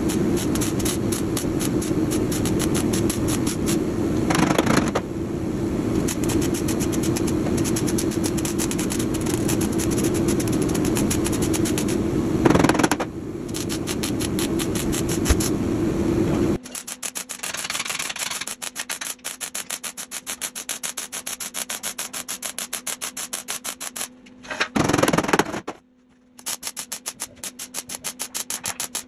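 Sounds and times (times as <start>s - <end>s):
welder arc crackling: 0.0s - 5.0s, 5.8s - 15.7s, 16.3s - 24.1s, 26.4s - 29.0s.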